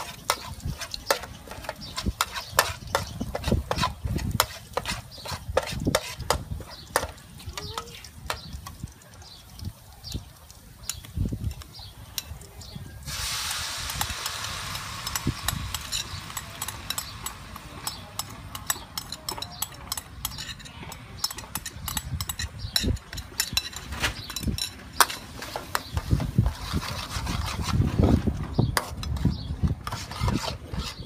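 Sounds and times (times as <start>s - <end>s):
metal spoon scraping and tapping: 0.0s - 9.2s, 10.8s - 12.4s, 13.9s - 27.9s, 28.6s - 31.0s
loud sizzle of sauce in oil: 0.0s - 18.5s.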